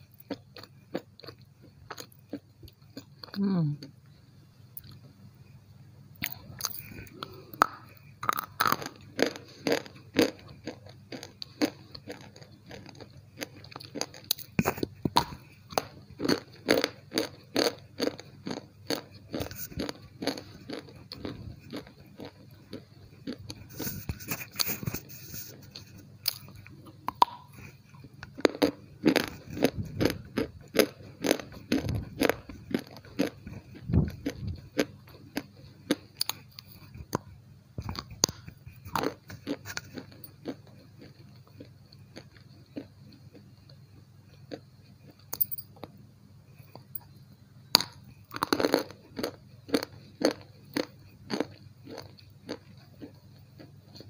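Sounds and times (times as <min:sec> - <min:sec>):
chewing hard chalky pieces: 0:06.2 - 0:37.2, 0:37.8 - 0:43.5, 0:47.8 - 0:54.0.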